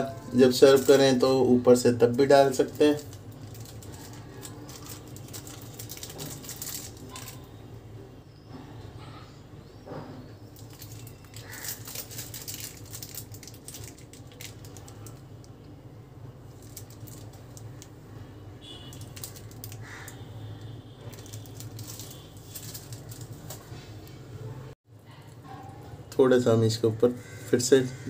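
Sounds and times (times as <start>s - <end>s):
noodles crackling in a pan: 2.1s - 7.4s, 10.6s - 15.3s, 16.5s - 17.9s, 18.6s - 20.2s, 21.0s - 23.7s.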